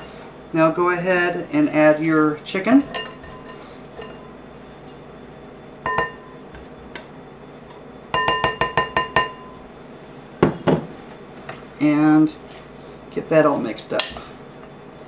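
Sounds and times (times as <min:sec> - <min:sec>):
wooden spoon clinking glass bowl: 0:02.8 - 0:04.3, 0:05.9 - 0:06.4, 0:08.2 - 0:09.6.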